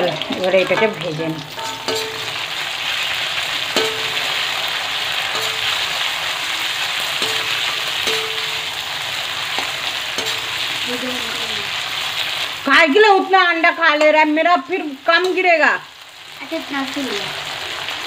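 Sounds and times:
chicken sizzling in hot oil: 0:00.0 - 0:18.0
spatula knocking against pan: 0:03.8 - 0:04.3, 0:07.2 - 0:08.7.

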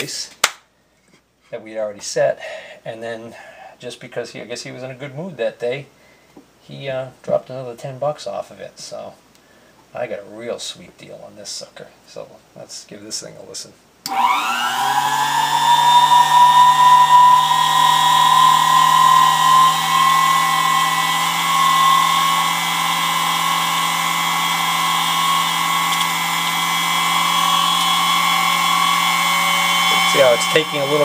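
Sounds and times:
drill press motor whining: 0:14.1 - 0:31.0.

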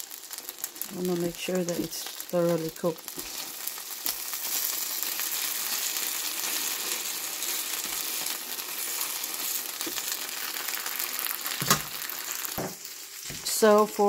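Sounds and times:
dumplings sizzling on griddle: 0:00.0 - 0:14.0.

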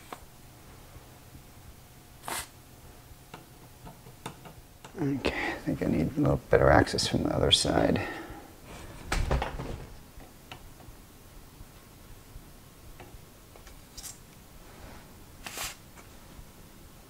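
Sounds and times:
desoldering bulb air hiss: 0:02.2 - 0:02.6, 0:15.3 - 0:16.0.

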